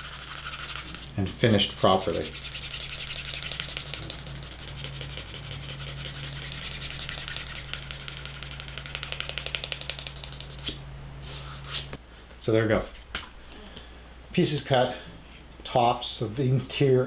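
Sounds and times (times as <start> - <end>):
hand rubbing leather edge: 0.0 - 12.0
steady low hum: 0.0 - 17.0.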